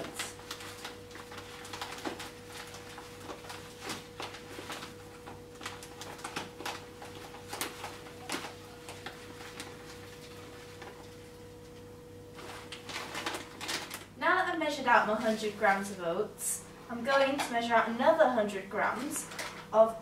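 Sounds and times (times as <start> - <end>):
bag crinkling: 0.0 - 11.3, 12.2 - 14.2.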